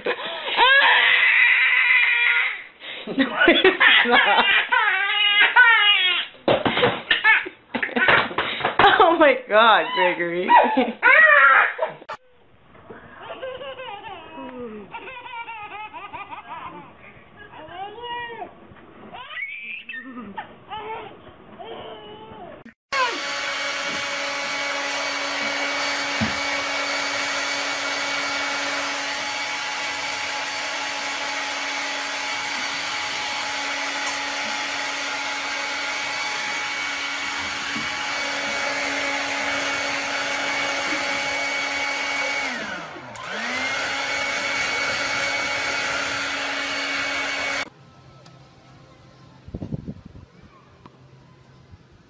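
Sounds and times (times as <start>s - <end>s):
electric motor humming: 22.9s - 47.7s.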